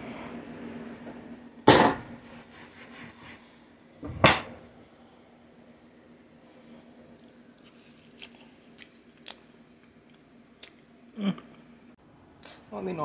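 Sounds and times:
person chewing food: 7.1 - 10.8.

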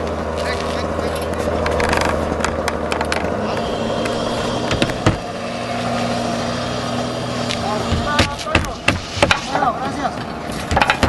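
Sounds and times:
engine humming: 0.0 - 11.0
sharp knocks on roof: 4.7 - 5.2.

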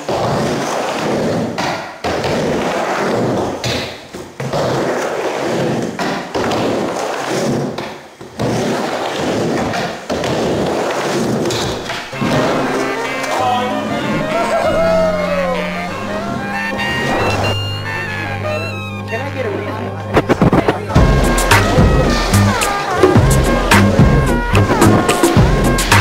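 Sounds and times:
skateboard wheels rolling on ramp: 0.0 - 13.0.

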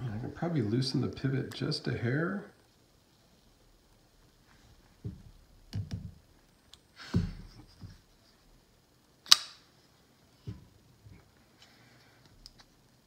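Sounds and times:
folding knife clicks: 9.2 - 9.6.

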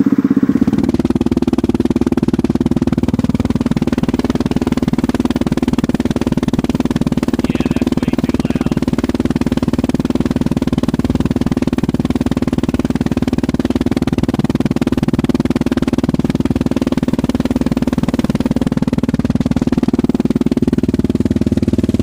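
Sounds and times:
atv engine idling: 0.0 - 22.0.

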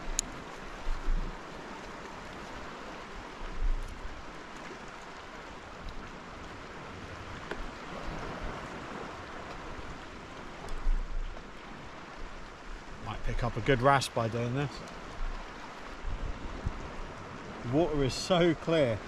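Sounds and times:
water lapping against kayak: 0.0 - 19.0.

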